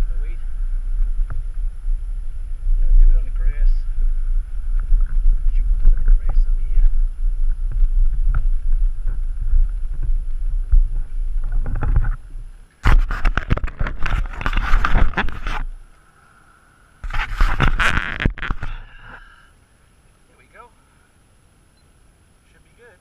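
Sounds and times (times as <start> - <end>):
loud rushes of wind noise: 0.0 - 15.8
low wind rumble: 0.0 - 22.5.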